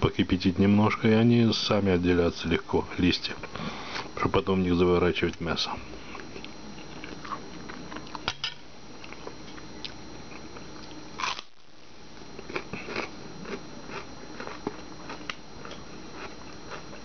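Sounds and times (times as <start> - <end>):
person chewing crunchy food: 5.9 - 8.3, 8.9 - 17.0.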